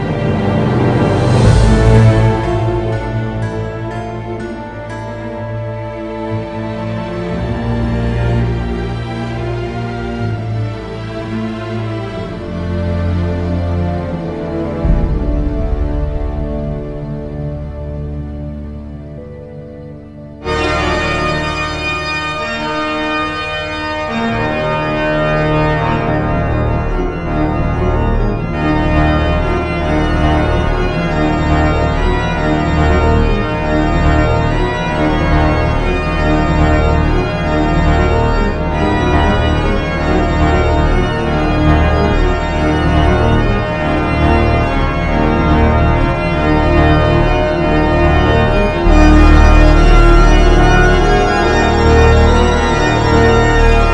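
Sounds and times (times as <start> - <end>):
organ chords: 0.0 - 53.9.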